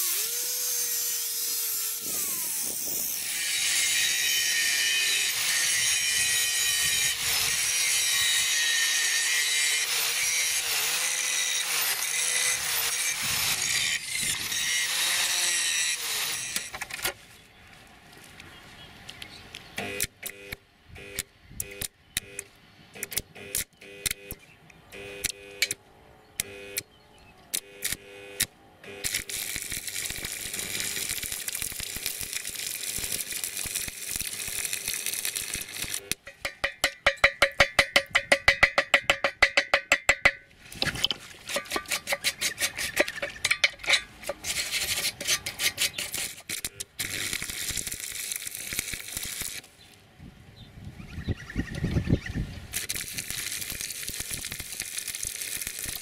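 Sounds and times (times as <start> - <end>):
welding arc crackling: 27.8 - 36.8, 43.3 - 49.7, 52.7 - 56.0.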